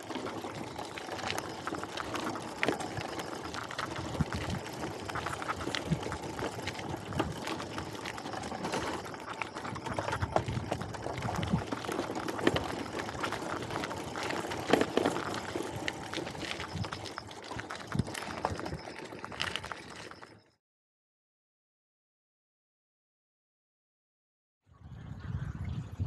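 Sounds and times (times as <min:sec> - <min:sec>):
bicycle rolling on road: 0:00.0 - 0:20.6.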